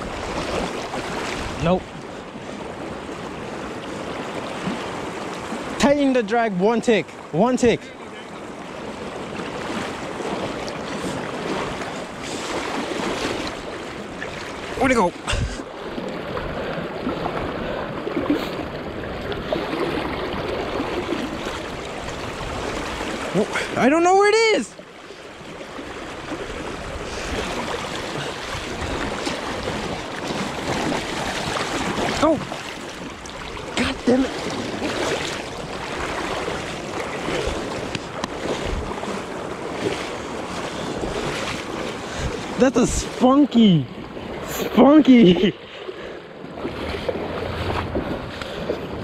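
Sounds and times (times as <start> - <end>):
sharp water splashes: 0.0 - 6.2, 8.7 - 45.9
river current rushing: 0.0 - 49.0
wind buffeting microphone: 8.8 - 23.8, 25.4 - 43.2, 46.5 - 49.0.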